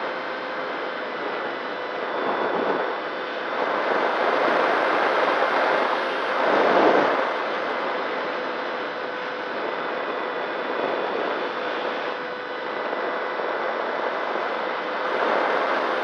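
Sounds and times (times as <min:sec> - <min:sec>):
motor and propeller whine: 0:00.0 - 0:16.0
wind rushing over camera: 0:00.0 - 0:16.0.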